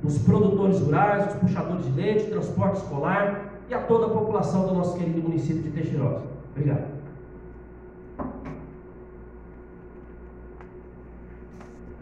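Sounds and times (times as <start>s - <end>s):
low electrical hum: 0.0s - 12.0s
soft knock: 8.2s - 8.6s.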